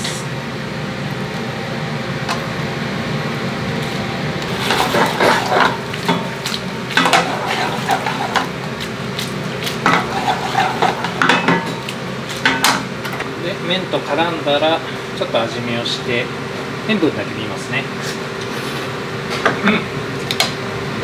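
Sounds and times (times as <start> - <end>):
metal tongs scraping a pan: 4.5 - 6.3, 7.0 - 8.5, 9.8 - 11.8.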